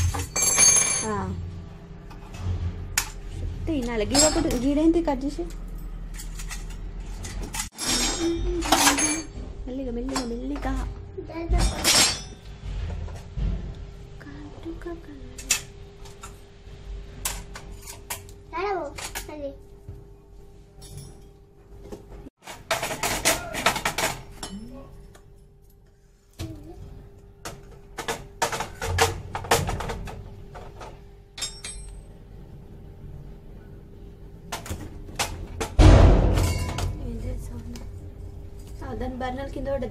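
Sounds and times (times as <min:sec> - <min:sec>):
dishes and utensils clinking: 0:00.0 - 0:01.3, 0:04.0 - 0:04.8, 0:05.8 - 0:09.4, 0:11.5 - 0:13.0, 0:30.6 - 0:32.1.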